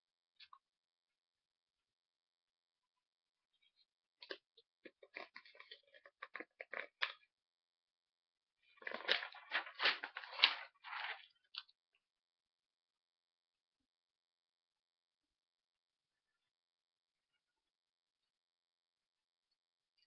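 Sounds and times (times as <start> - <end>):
paper rustling and crinkling: 8.7 - 11.7.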